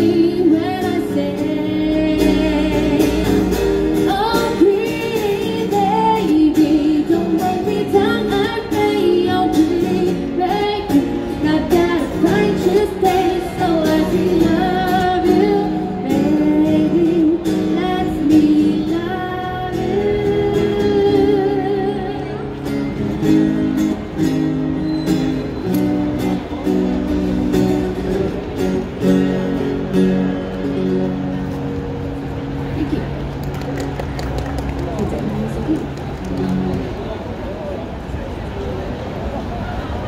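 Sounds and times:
acoustic guitar: 0:00.0 - 0:38.1
woman singing a pop ballad: 0:04.0 - 0:22.3.

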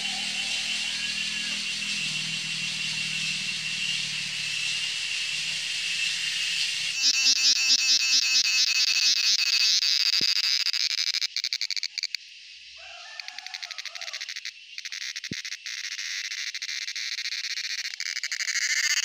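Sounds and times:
cicada buzzing and clicking: 0:00.0 - 0:19.0.

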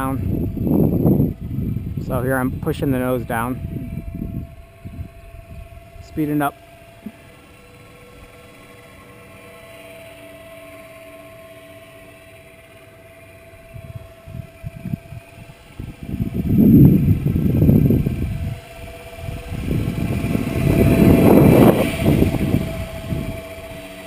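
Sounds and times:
wind buffeting microphone: 0:00.0 - 0:07.2, 0:13.5 - 0:24.0
electric motor whine: 0:00.0 - 0:24.0.

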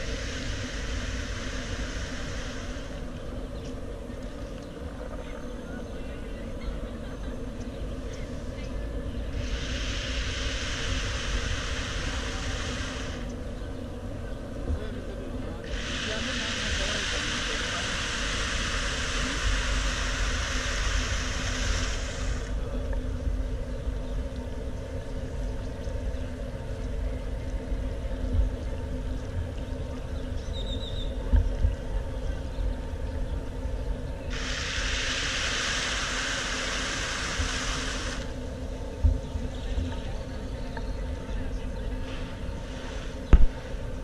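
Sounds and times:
loud hiss: 0:00.0 - 0:03.2, 0:09.3 - 0:13.4, 0:15.6 - 0:22.7, 0:34.3 - 0:38.6, 0:42.1 - 0:44.0
traffic rumble: 0:00.0 - 0:44.0.

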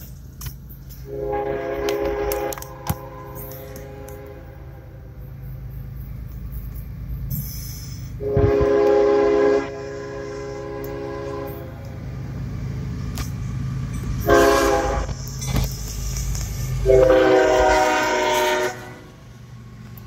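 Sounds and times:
train rumble: 0:00.0 - 0:20.0
locomotive air horn: 0:01.0 - 0:05.1, 0:08.1 - 0:11.9, 0:14.2 - 0:15.3, 0:16.8 - 0:19.2.

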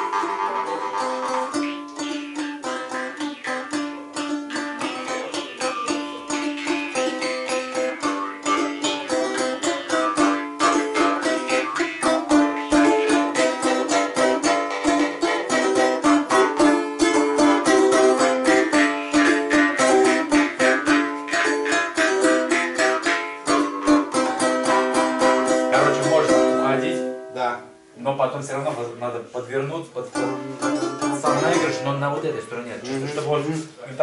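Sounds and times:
balalaika strummed fast: 0:00.0 - 0:27.4, 0:30.0 - 0:33.2
jaw harp twanging drone: 0:06.3 - 0:14.9.

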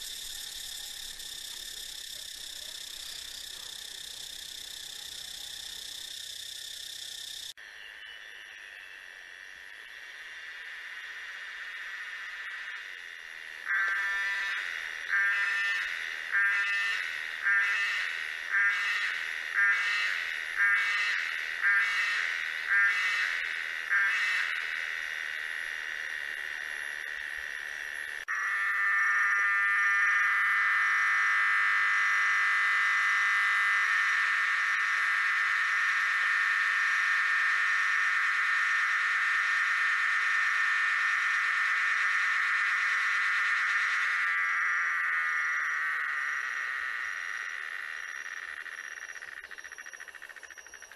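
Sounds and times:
cicada steady buzz: 0:00.0 - 0:50.9
cicadas pulsed calls: 0:00.0 - 0:50.9.

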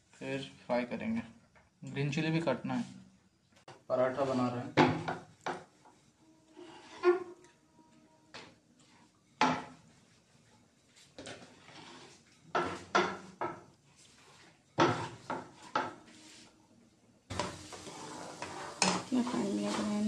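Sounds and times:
flatbread sizzling in oiled pan: 0:08.8 - 0:16.6, 0:17.2 - 0:20.0.

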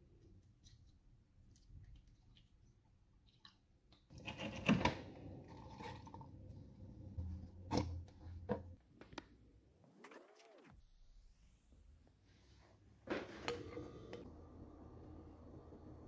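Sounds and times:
plastic blender parts clattering: 0:04.1 - 0:06.2.

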